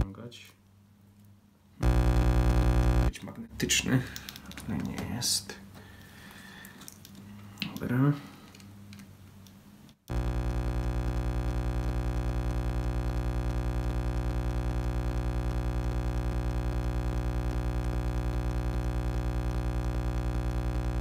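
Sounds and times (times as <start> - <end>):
throbbing electronic drone: 1.8 - 3.1, 10.1 - 21.0.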